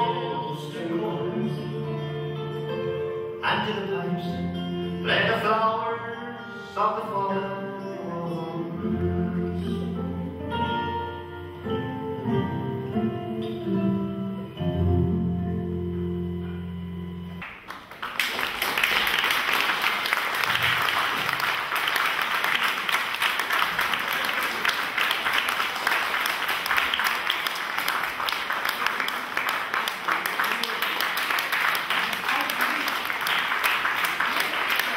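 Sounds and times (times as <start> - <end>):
guitar-led music: 0.0 - 17.4
audience applauding: 17.4 - 34.9.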